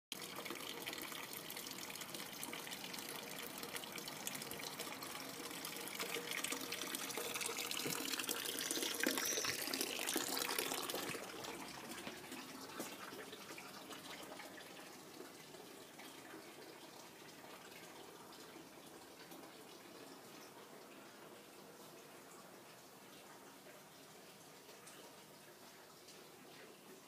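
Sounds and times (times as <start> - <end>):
fountain water splashing into basin: 0.1 - 15.4.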